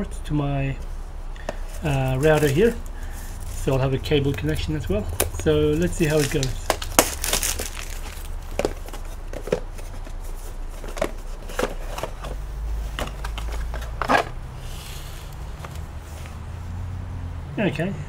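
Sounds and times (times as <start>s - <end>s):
packaging rustle: 1.4s - 14.4s
plastic bag crinkling: 1.8s - 12.3s.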